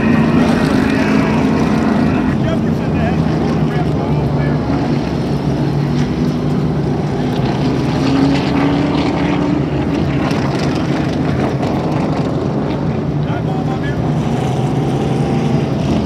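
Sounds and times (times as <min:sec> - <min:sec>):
race car engines droning: 0:00.0 - 0:16.0.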